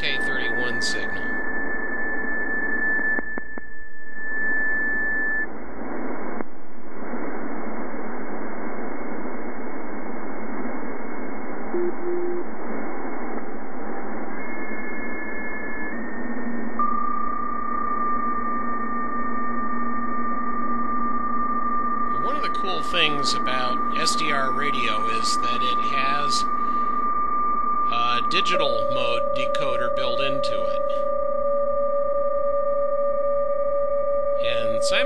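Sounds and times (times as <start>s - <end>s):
thin steady data tones: 0.0s - 6.4s, 11.7s - 12.5s, 13.9s - 35.0s
band noise hiss: 22.1s - 26.8s, 27.9s - 31.0s, 34.4s - 35.0s.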